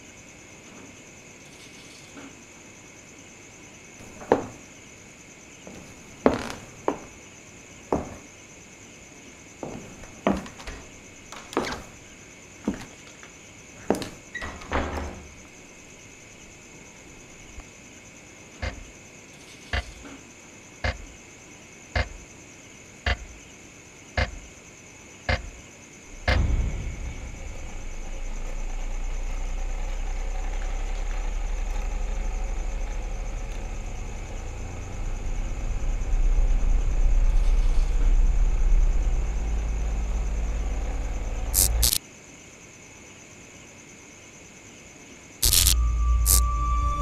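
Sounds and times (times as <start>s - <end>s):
wall clock ticking: 22.0s - 22.2s, 23.1s - 23.3s
loud low drone: 26.1s - 42.0s, 45.4s - 47.0s
brief sharp high sound: 45.4s - 47.0s.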